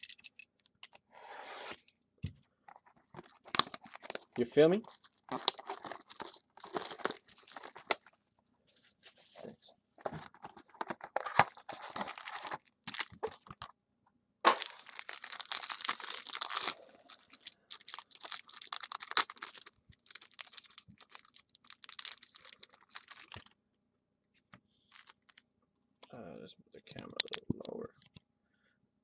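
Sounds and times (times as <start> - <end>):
wrapper tearing and crinkling: 3.2 - 8.1, 10.2 - 13.6, 14.5 - 23.4, 24.9 - 25.4.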